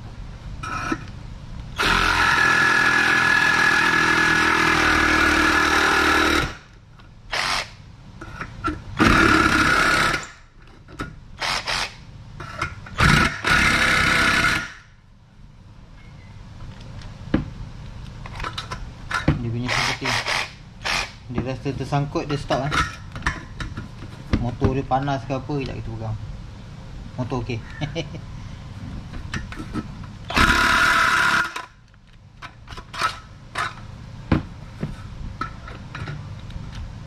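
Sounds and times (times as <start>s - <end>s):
reciprocating saw cutting steel: 19.6s - 21.2s.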